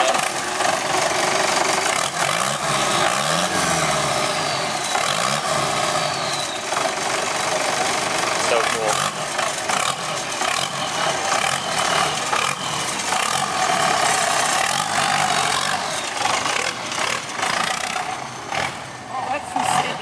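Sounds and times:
car engine running: 0.0s - 20.0s.

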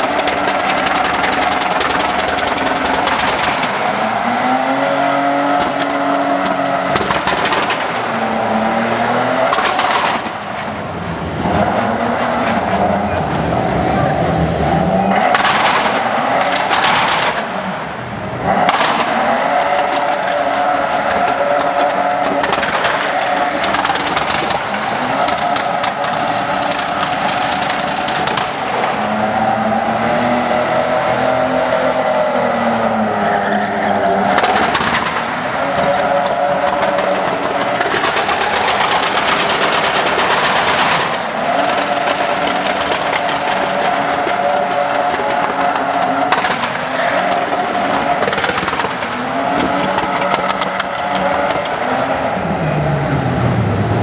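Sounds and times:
engine revving hard: 0.0s - 54.0s
tyres squealing: 19.2s - 52.2s.

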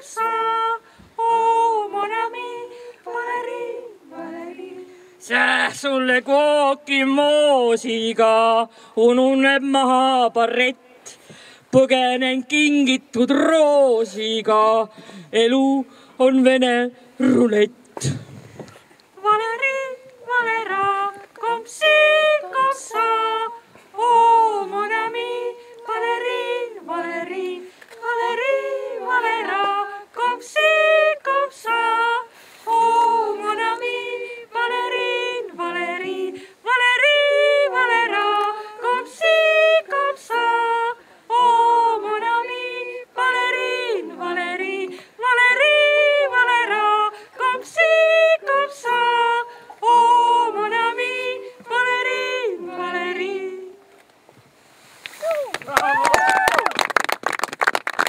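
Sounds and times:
women singing unaccompanied: 0.0s - 10.7s, 19.1s - 54.0s.

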